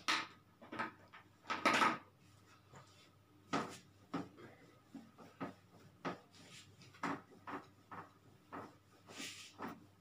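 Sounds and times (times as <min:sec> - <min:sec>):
duster wiping whiteboard: 0:02.2 - 0:10.0.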